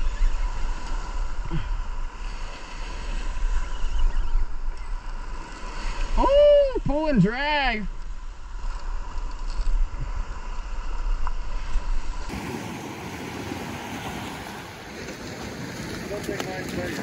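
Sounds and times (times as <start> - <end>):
small surf washing ashore: 0.0 - 3.8, 5.0 - 17.0
wind buffeting microphone: 11.7 - 17.0.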